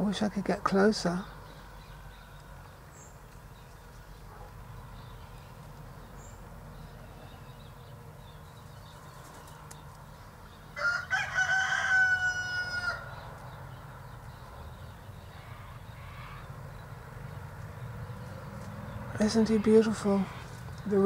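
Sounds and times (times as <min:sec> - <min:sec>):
rooster crowing: 0:10.7 - 0:13.2.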